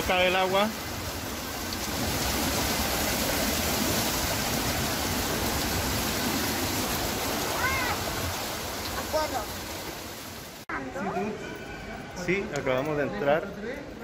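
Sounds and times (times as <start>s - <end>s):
steady rush of falling water: 0.0s - 10.7s.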